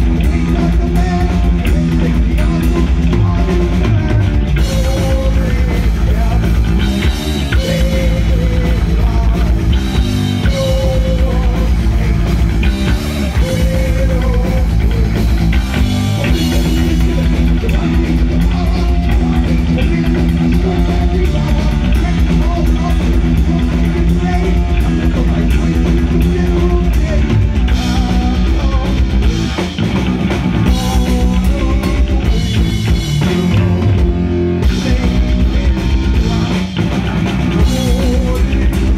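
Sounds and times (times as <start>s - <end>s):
heavy metal band playing: 0.0s - 38.9s.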